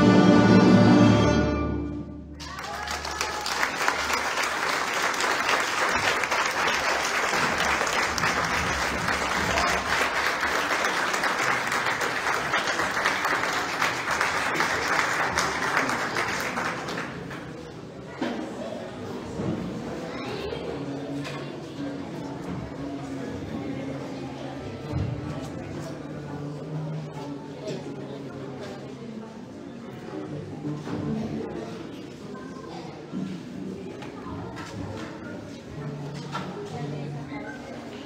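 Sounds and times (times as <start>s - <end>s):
string orchestra chord: 0.0s - 2.4s
audience applauding: 2.4s - 17.6s.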